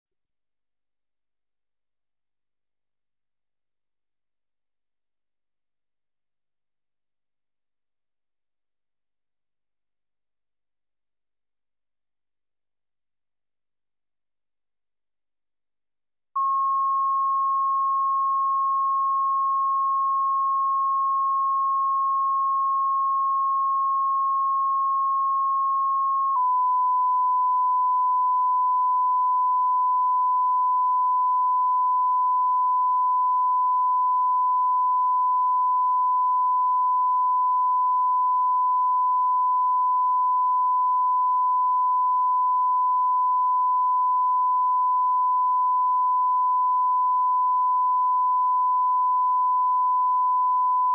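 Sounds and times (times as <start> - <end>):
steady test tone beep: 16.4 - 50.9.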